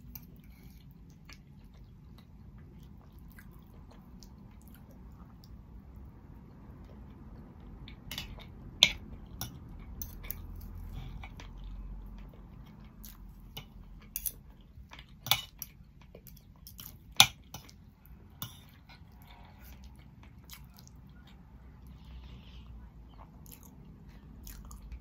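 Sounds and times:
chewing: 0:00.0 - 0:05.6, 0:06.4 - 0:25.0.

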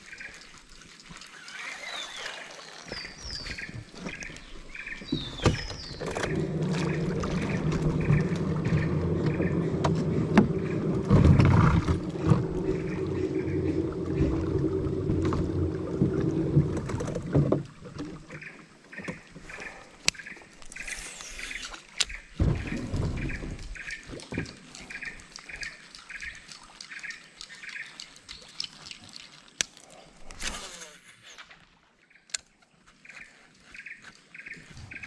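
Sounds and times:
steady motor hum: 0:05.8 - 0:16.8.

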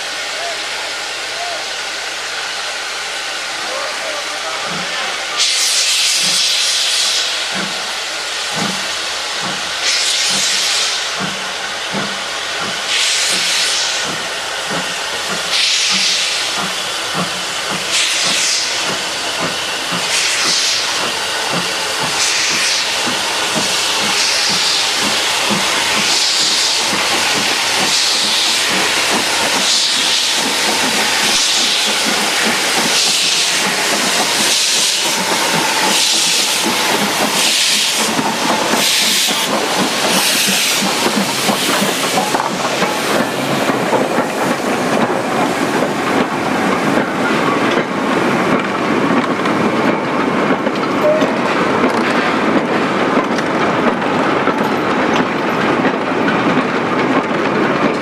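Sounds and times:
steam hissing: 0:00.0 - 0:53.0
steam locomotive exhaust beats: 0:00.0 - 0:58.0.

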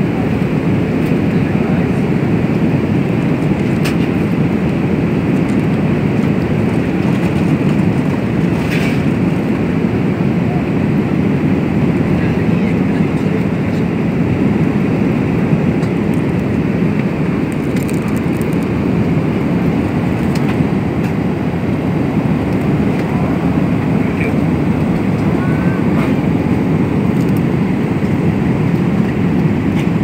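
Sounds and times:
airplane cabin engine rumble: 0:00.0 - 0:30.0.

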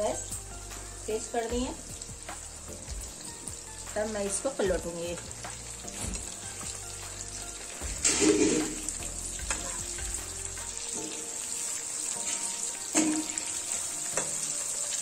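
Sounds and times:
fish sizzling in hot oil: 0:00.0 - 0:15.0
spatula scraping a pan: 0:07.9 - 0:10.0.

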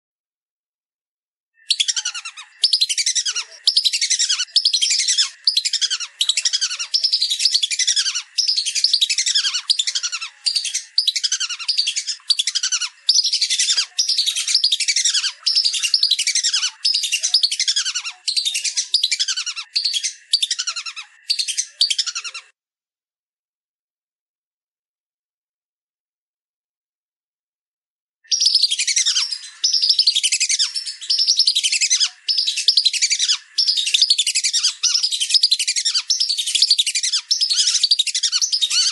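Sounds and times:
whistling duck calling: 0:01.6 - 0:22.5, 0:28.3 - 0:38.9.

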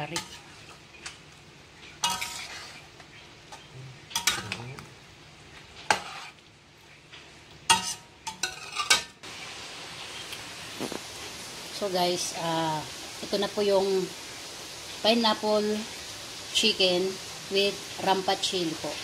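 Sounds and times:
faint curry sizzle: 0:00.0 - 0:19.0
metal utensil scraping a wok: 0:00.1 - 0:00.8, 0:02.0 - 0:02.9, 0:04.1 - 0:04.7, 0:05.8 - 0:06.4, 0:07.7 - 0:09.1.

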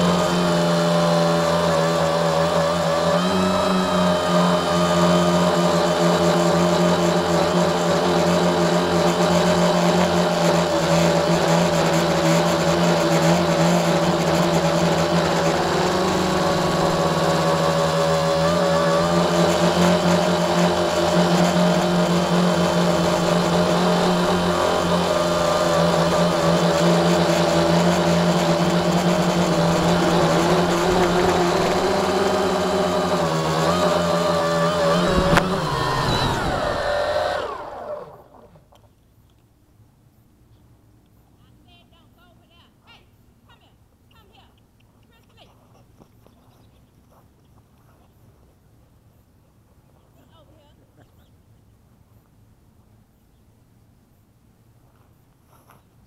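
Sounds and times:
drone propellers buzzing: 0:00.0 - 0:38.6.

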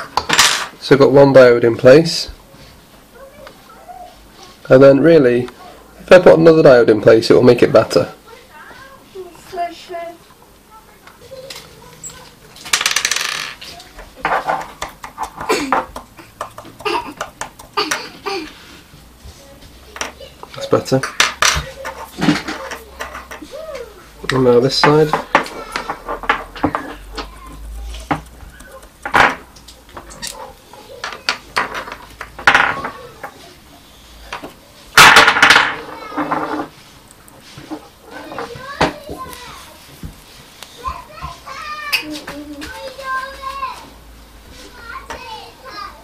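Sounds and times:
tools clicking and knocking on desk: 0:14.2 - 0:18.1, 0:20.0 - 0:23.5, 0:24.2 - 0:27.3, 0:28.0 - 0:30.4, 0:31.0 - 0:33.4
small tools clattering on desk: 0:20.0 - 0:23.5.

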